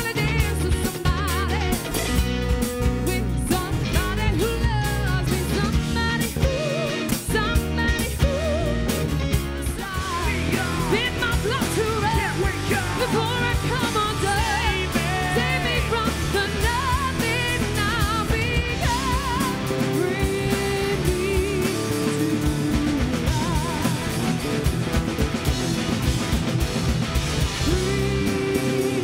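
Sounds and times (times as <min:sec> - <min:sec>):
woman singing lead: 0:00.0 - 0:25.0, 0:27.4 - 0:29.0
rock band playing: 0:00.0 - 0:29.0.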